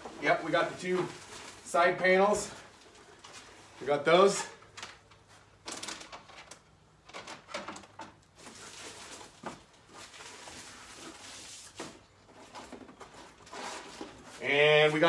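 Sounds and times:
paper rustling: 0:08.3 - 0:15.0.

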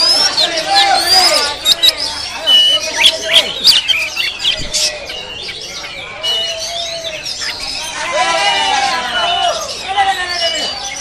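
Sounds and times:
songbird whistles and chirps: 0:00.0 - 0:08.1, 0:08.8 - 0:11.0.

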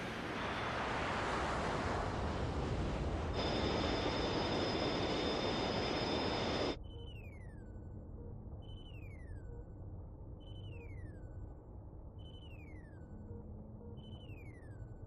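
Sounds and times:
aircraft engine roar: 0:03.4 - 0:06.8
high steady whining tones: 0:03.4 - 0:06.8.

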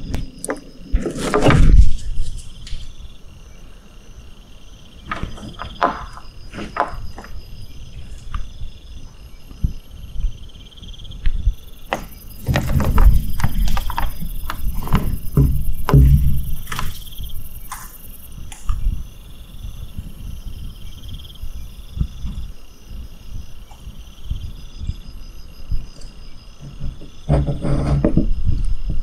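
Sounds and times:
insects trilling: 0:00.0 - 0:29.0
rustling and scuffing: 0:00.9 - 0:03.0, 0:05.1 - 0:09.6, 0:11.9 - 0:19.0.

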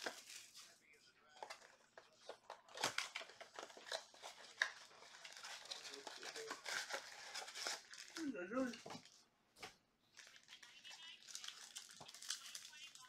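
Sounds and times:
foil packs rustling: 0:02.6 - 0:09.2.

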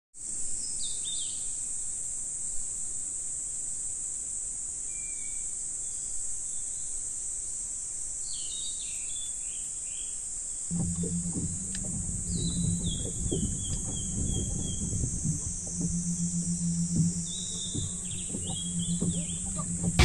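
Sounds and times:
high-pitched insect chorus: 0:10.7 - 0:20.0.

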